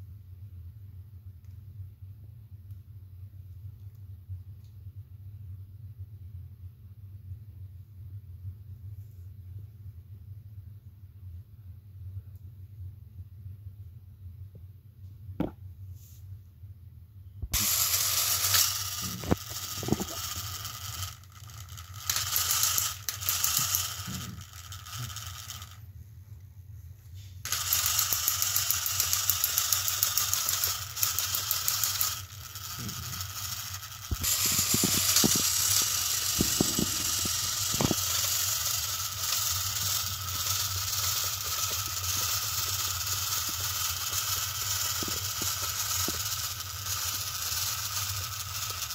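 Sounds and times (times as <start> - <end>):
toy train wheels rattling: 17.5 - 25.8, 27.4 - 48.9
toy train motors whirring: 17.5 - 25.9, 27.4 - 48.9.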